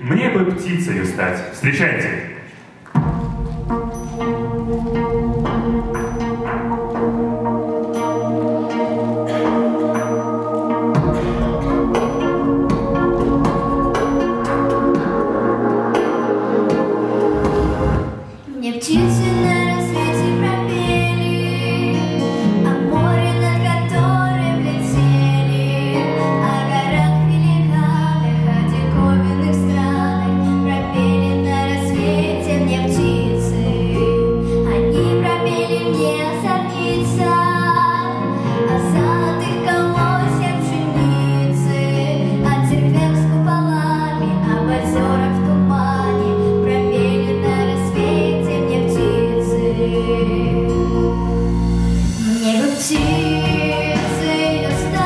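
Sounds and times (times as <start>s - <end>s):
instrumental backing track: 2.6s - 55.0s
girl singing into a microphone: 18.5s - 51.2s, 52.2s - 55.0s.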